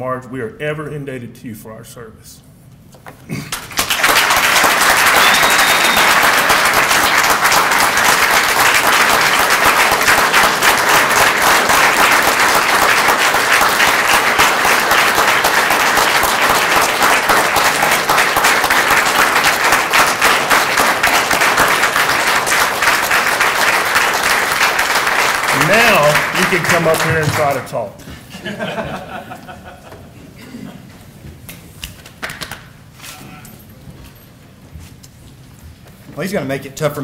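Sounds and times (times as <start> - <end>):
audience applauding: 3.5 - 27.8.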